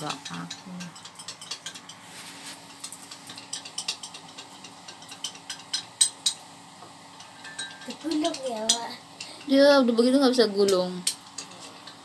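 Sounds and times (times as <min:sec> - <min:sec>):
utensil scraping a frying pan: 0:00.0 - 0:06.4, 0:10.7 - 0:12.0.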